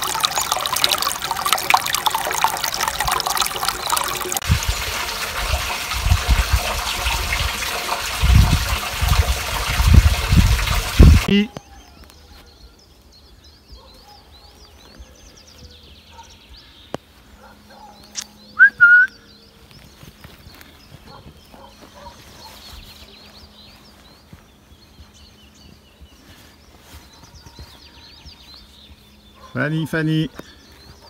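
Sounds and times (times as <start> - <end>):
small birds chirping: 11.3 - 31.0
person whistling: 18.6 - 19.2.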